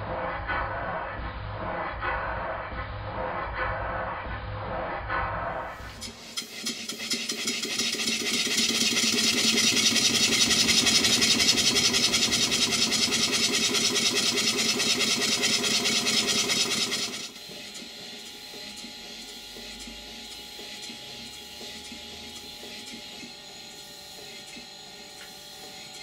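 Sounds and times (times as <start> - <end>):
steam engine exhaust puffs: 5.8 - 17.4.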